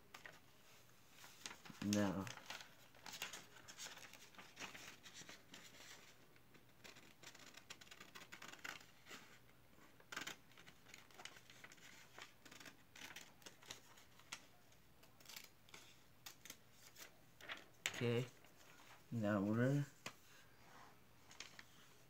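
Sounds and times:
paper scratching and rustling: 1.2 - 6.2, 6.8 - 9.4, 10.1 - 14.5.

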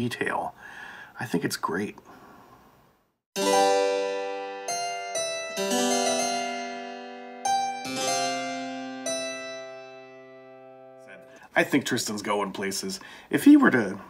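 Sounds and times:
keyboard chords: 3.4 - 11.4.

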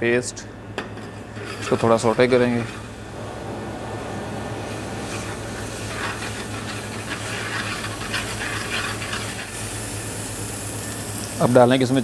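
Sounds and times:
low hum: 2.9 - 8.4.

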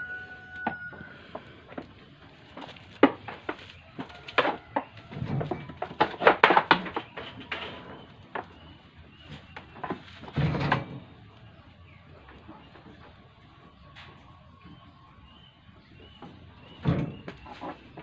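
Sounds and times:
goat hooves knocking on wooden planks: 0.6 - 7.7.

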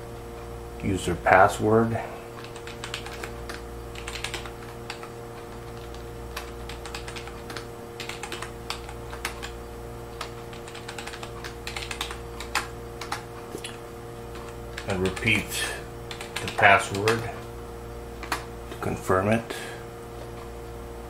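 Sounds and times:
low electrical hum: 0.0 - 21.0
keyboard keys clicking: 2.4 - 9.6, 10.2 - 15.4, 16.1 - 17.4, 18.2 - 18.8.

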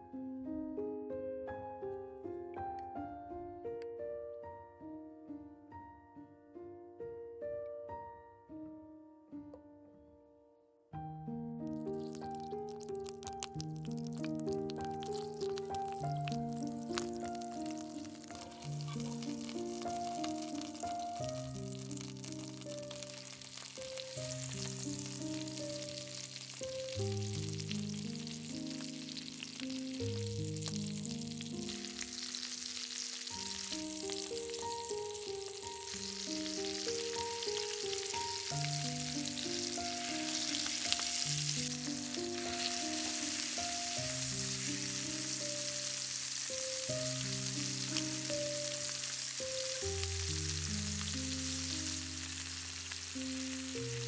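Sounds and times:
soft background music: 10.9 - 54.0
chicken sizzling in a skillet: 11.8 - 54.0.

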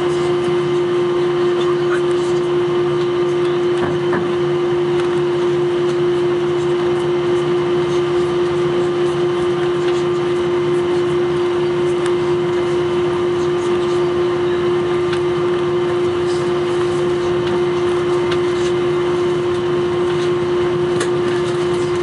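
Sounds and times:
airplane cabin drone: 0.0 - 22.0.

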